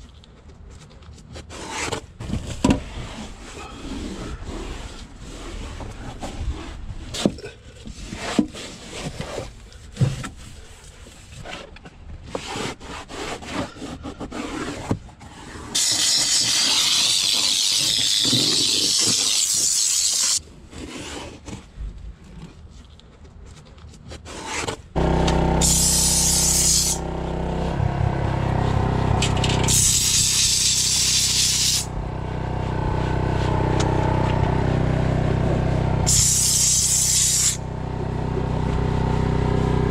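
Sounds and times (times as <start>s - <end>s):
steam cleaner hissing: 15.8s - 20.4s, 25.4s - 27.0s, 29.6s - 31.9s, 36.1s - 37.6s
steam cleaner humming: 25.0s - 39.8s.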